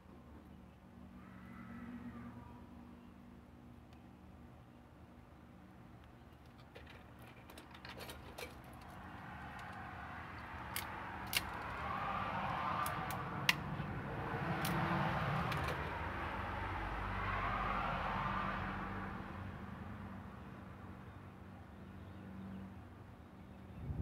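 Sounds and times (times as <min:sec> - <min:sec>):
cable stripper clicking: 0:10.6 - 0:11.8.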